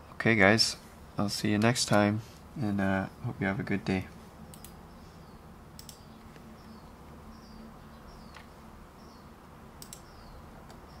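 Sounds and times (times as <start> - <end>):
faint low hum: 0.0 - 11.0
computer mouse clicks: 4.5 - 4.8, 5.8 - 6.5, 9.8 - 10.8.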